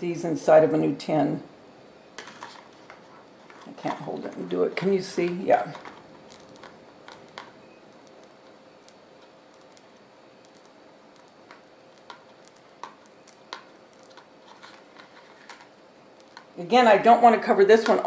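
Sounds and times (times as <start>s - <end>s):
faint steady hum: 0.0s - 18.0s
piping bag squishing: 3.2s - 16.6s.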